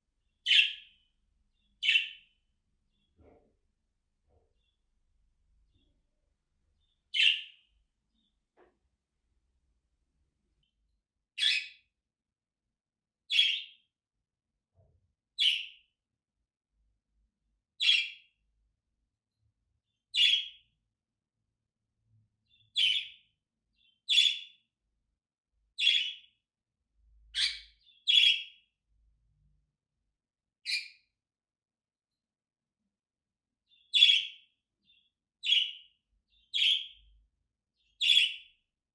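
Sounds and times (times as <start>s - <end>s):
budgerigar chirping: 0.4s - 0.9s, 1.8s - 2.2s, 7.1s - 7.6s, 11.4s - 11.8s, 13.3s - 13.8s, 17.8s - 18.2s, 20.1s - 20.6s, 22.7s - 23.2s, 23.8s - 24.6s, 25.8s - 26.3s, 27.3s - 28.6s, 30.6s - 31.0s, 33.7s - 34.4s, 35.4s - 37.0s, 38.0s - 38.5s.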